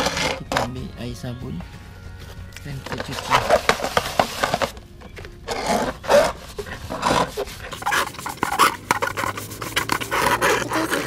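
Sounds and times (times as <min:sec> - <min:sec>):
sponge scrubbing wet surface: 0:06.0 - 0:11.0.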